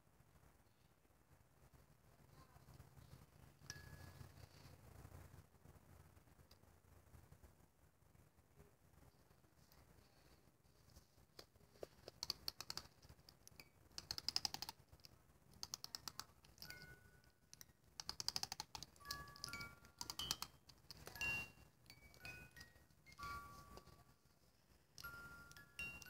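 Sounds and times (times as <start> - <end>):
music box chiming notes: 3.7 - 4.4, 16.6 - 17.4, 19.0 - 24.2, 25.0 - 26.0
music box ratchet clicking: 17.5 - 23.3.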